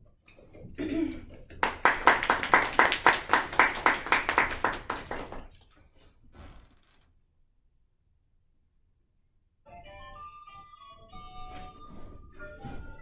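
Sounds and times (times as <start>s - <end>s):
audience clapping: 1.5s - 5.6s.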